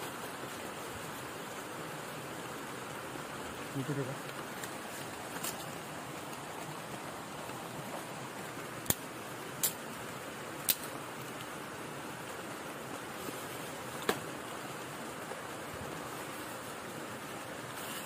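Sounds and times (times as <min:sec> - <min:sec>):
rain on umbrella and foliage: 0:00.0 - 0:18.0.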